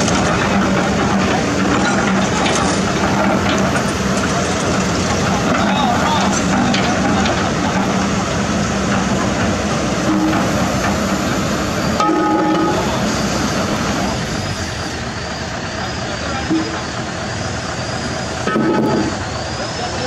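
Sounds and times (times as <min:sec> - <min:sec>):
heavy diesel engines running: 0:00.0 - 0:20.0
steady tone: 0:09.7 - 0:19.7.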